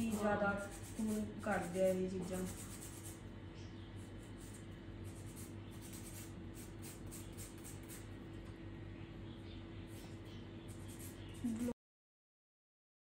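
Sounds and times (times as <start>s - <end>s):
nail file rasping: 0.0s - 3.2s, 4.0s - 8.2s, 10.7s - 11.7s
steady low hum: 0.0s - 11.8s.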